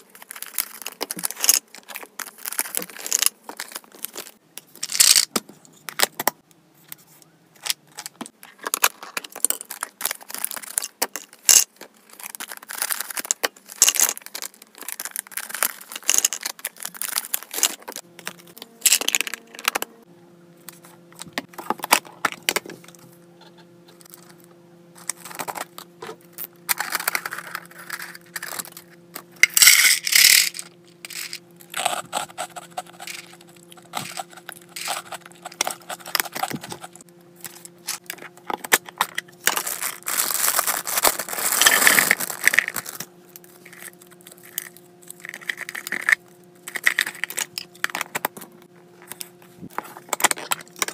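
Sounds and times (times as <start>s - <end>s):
dry treats rattling inside container: 0.0s - 5.3s, 8.6s - 19.8s, 26.7s - 48.3s
faint steady hum: 0.0s - 50.9s.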